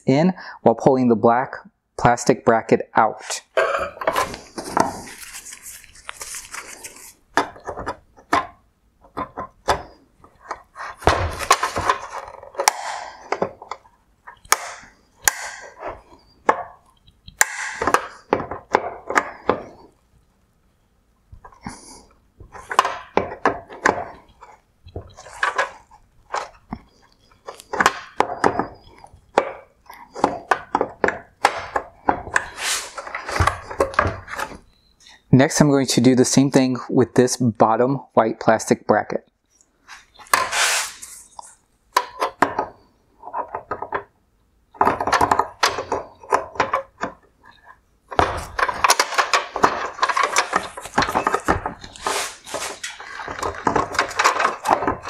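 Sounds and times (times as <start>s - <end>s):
plastic clicks and knocks: 7.3s - 19.9s, 22.4s - 34.8s, 41.9s - 55.0s.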